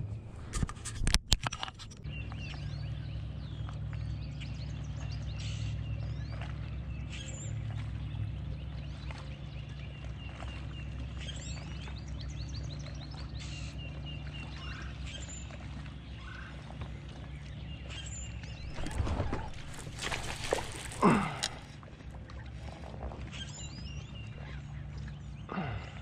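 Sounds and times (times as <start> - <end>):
low rumble: 18.4 - 22.1.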